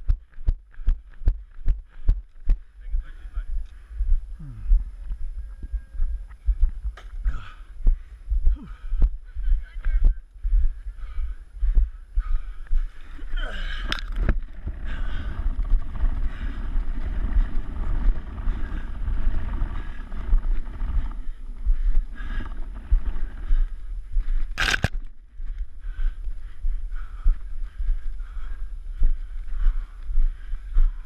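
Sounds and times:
wind on camera: 12.7 - 28.2
camera handling rumble: 13.7 - 16.1, 24.4 - 25.7.

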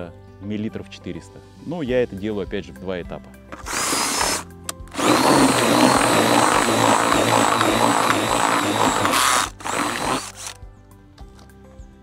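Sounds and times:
churning of bait mix: 3.6 - 10.6
cordless drill motor whining: 3.6 - 10.6.

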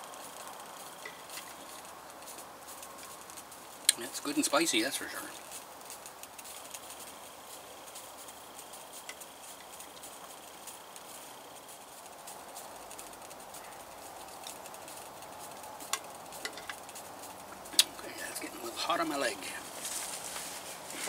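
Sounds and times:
faint background hiss: 0.0 - 21.0
spoon clicking on tin can: 15.9 - 16.8.

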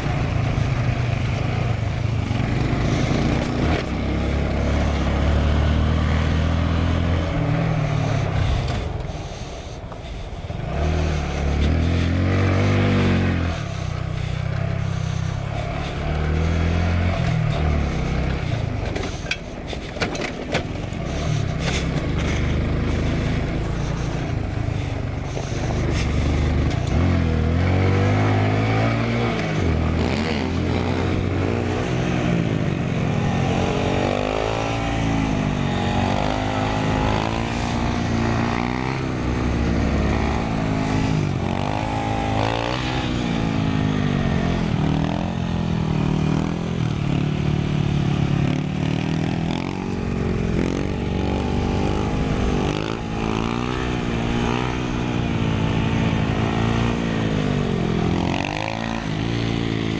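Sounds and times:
motorcycle engine revving: 0.0 - 59.9
bike knocking and rattling: 17.2 - 27.0.

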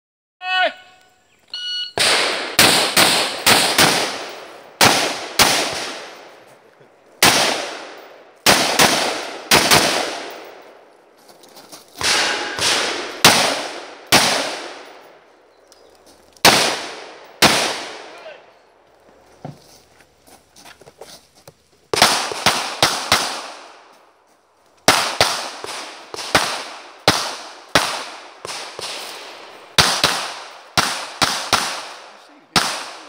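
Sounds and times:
shot timer beep: 1.5 - 2.0
rifle shots: 2.0 - 6.4, 7.2 - 10.8, 12.0 - 15.2, 16.4 - 18.2, 21.9 - 23.8, 24.8 - 33.0.

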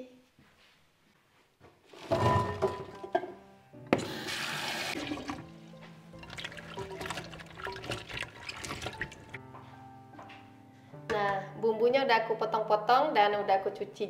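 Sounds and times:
background music: 2.0 - 14.0
tap water running and splashing: 4.0 - 9.4.

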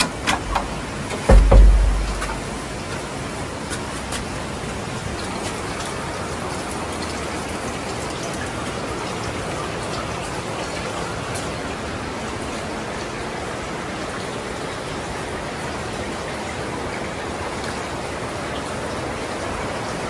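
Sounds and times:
water running into bath: 0.0 - 8.6.

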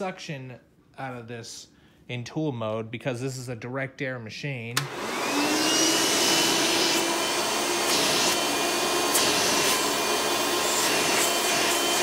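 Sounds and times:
vacuum cleaner motor running: 4.8 - 12.0.

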